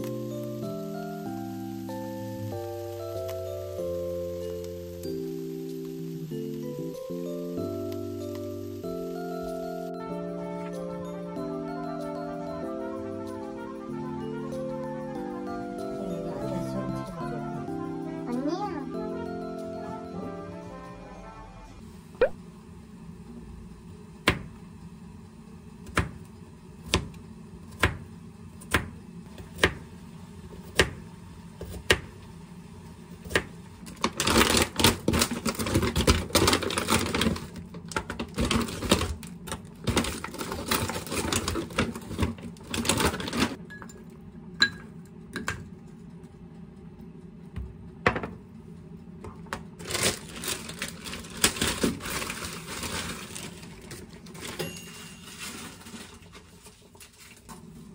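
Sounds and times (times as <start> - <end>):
knife chopping on cutting board: 26.9 - 28.0, 28.6 - 29.8
plastic bag crinkling: 34.0 - 43.6, 49.8 - 57.5.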